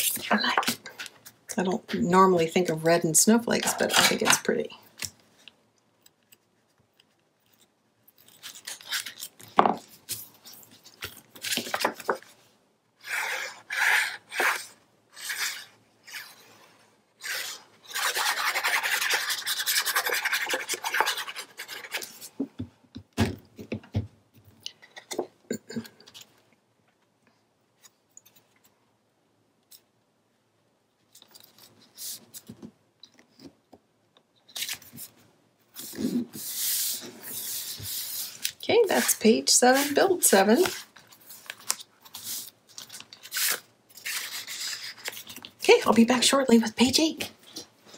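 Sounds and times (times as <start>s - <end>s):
hands smoothing paper: 13.0s - 22.3s, 35.7s - 45.2s
rubbing on cardstock: 35.8s - 40.8s.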